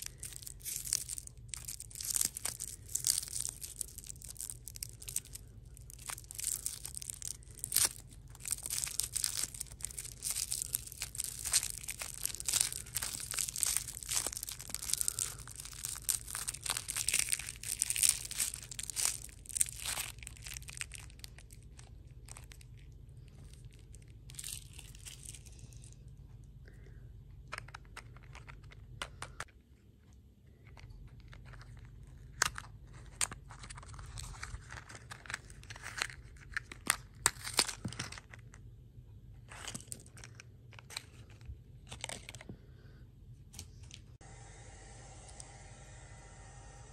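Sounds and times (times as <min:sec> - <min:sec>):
plastic wrapper crackling: 0:00.0 - 0:26.0, 0:31.2 - 0:38.6, 0:39.5 - 0:42.6.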